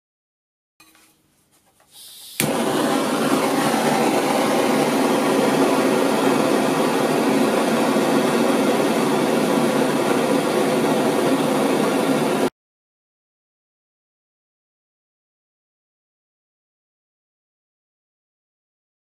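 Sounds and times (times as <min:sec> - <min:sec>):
gas blowtorch hissing: 0:01.9 - 0:12.5.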